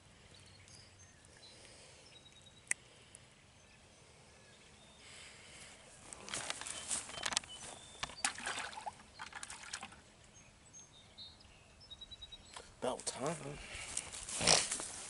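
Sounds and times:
rustling and handling clicks: 6.1 - 8.2.

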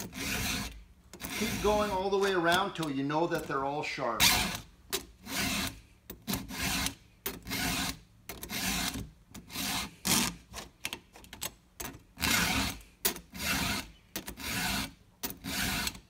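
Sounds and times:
file rasping on chainsaw chain: 0.0 - 2.7, 5.2 - 10.4, 12.2 - 16.0.

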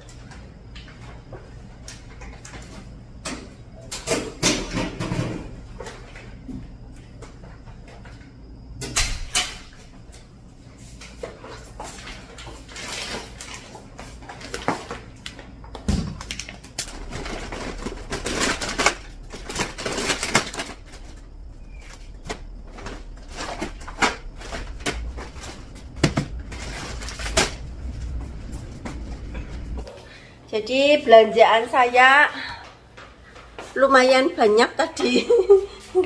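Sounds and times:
household objects clicking and clattering: 11.0 - 28.2
rustling: 16.7 - 29.9.

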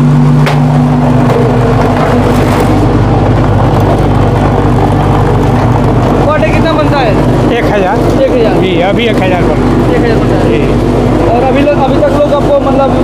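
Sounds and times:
concrete mixer running: 0.0 - 13.0
mould table machinery humming: 0.0 - 13.0.

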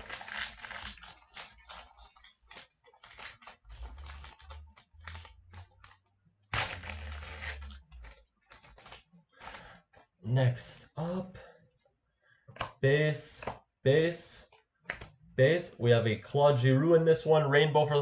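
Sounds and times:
wrapper crinkling as torn open: 0.0 - 10.1.

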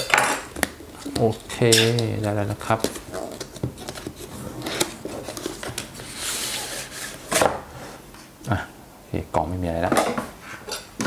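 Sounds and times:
cardboard scraping and rustling: 1.0 - 8.0.

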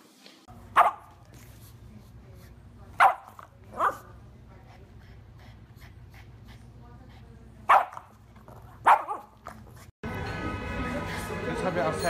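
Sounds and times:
dog barking: 0.7 - 1.2, 3.0 - 4.1, 7.7 - 8.1, 8.8 - 9.4.

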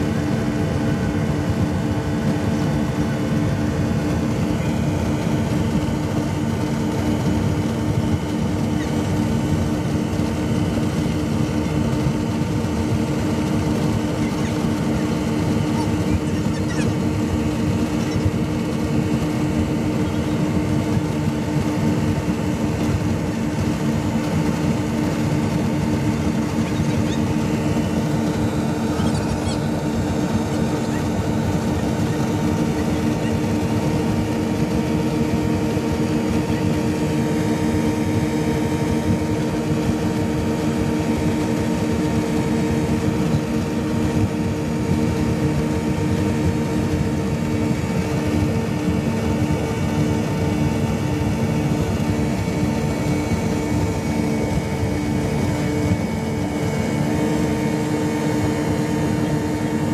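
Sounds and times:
outboard motors droning: 0.0 - 59.9.

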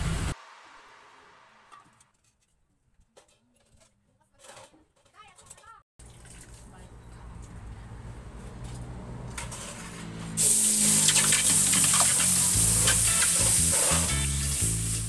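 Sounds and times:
liquid sizzling in hot wok: 10.4 - 15.0.

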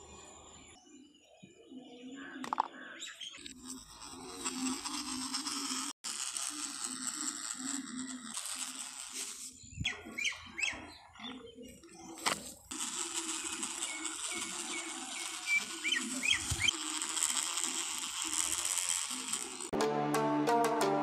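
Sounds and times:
toy motor buzzing: 3.4 - 10.9, 11.7 - 19.8.

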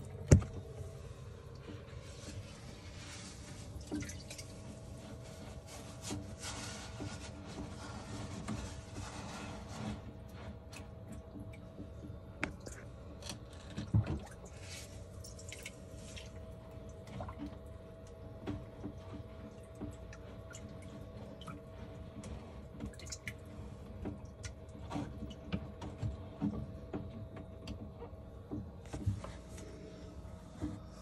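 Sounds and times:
pump hum: 0.0 - 31.0
water dripping and splashing: 3.5 - 5.1, 14.0 - 25.4.

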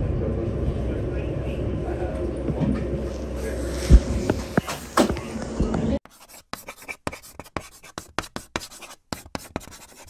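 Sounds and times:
continuous ride noise: 0.0 - 6.0
short scratching strokes: 6.1 - 10.0.

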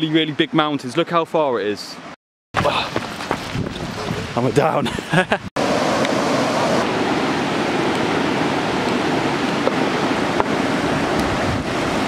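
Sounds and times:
river rapids roaring: 5.6 - 12.0.

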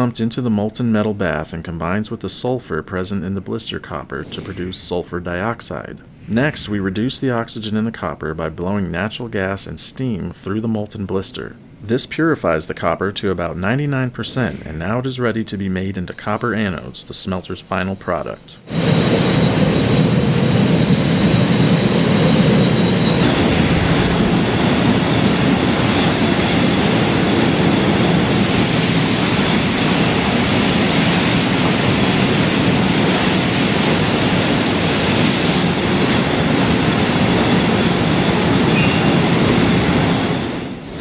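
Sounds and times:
high whine: 16.1 - 41.0
loud machinery noise: 18.7 - 41.0
hiss: 28.3 - 35.8.

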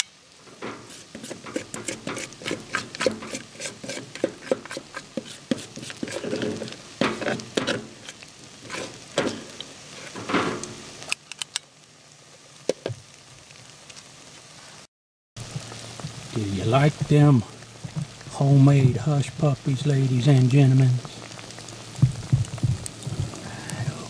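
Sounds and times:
oil sizzling while deep-frying: 0.0 - 24.0.

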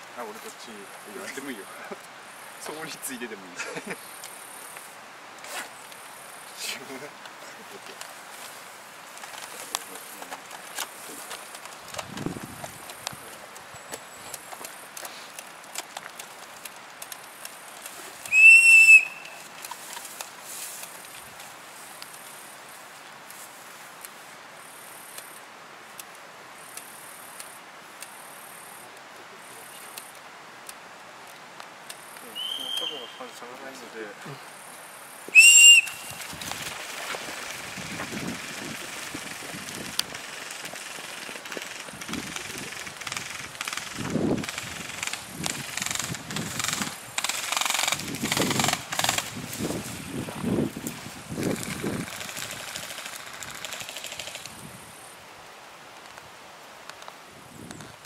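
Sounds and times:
brush crackling: 0.0 - 58.0
insects chirping: 0.0 - 58.0
steady hiss: 0.0 - 58.0
footsteps through undergrowth: 4.7 - 24.3, 35.3 - 53.6
faint sharp clicks: 9.2 - 18.4, 25.1 - 28.2, 56.0 - 57.9.

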